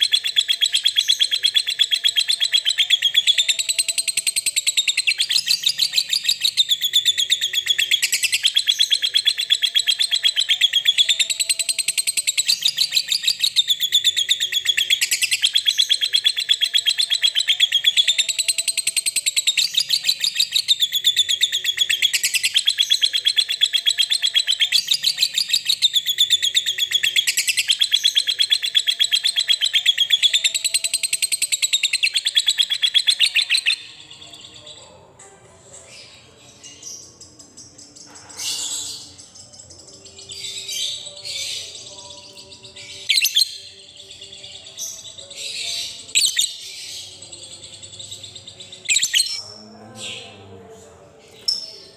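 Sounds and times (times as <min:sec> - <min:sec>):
lovebird chattering trill: 0:00.0 - 0:34.0, 0:48.9 - 0:49.4.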